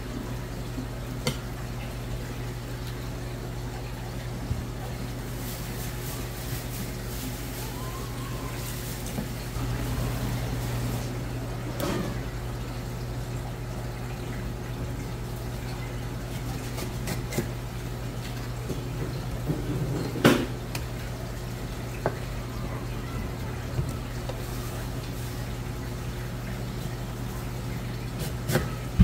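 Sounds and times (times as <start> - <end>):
knife scraping fish fillet: 16.4 - 17.5.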